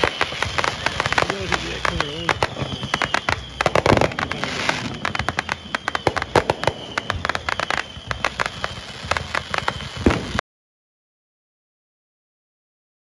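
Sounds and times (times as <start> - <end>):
fireworks crackling and popping: 0.0 - 10.4.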